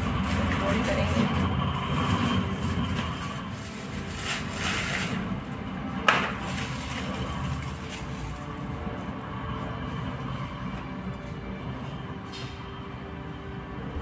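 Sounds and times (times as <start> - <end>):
aluminium foil crinkling: 2.2 - 5.4, 6.3 - 8.5.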